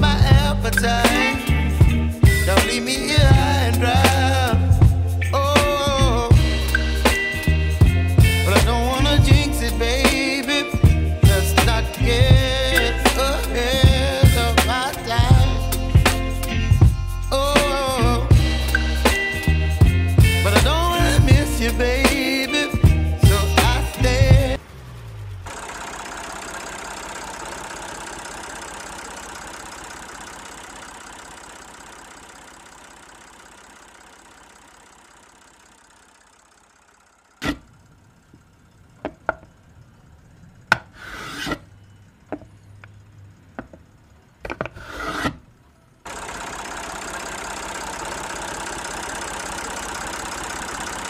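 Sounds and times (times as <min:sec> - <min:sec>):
short rattling bursts: 0:00.0 - 0:39.0, 0:45.5 - 0:51.0
motor running steadily: 0:00.0 - 0:45.0, 0:45.6 - 0:51.0.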